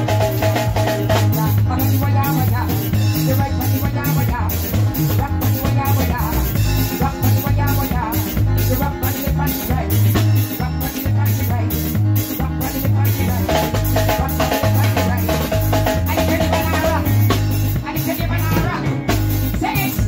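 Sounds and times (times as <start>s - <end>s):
deep bass: 0.0s - 20.0s
drum kit beat: 0.0s - 20.0s
higher melody line: 0.0s - 20.0s.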